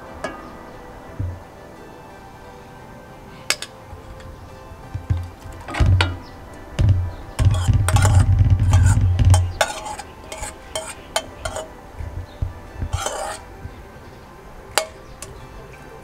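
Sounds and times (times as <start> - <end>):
low rumble: 5.0 - 9.6
metal spoon scraping a pot lid: 7.4 - 11.8, 12.8 - 13.5.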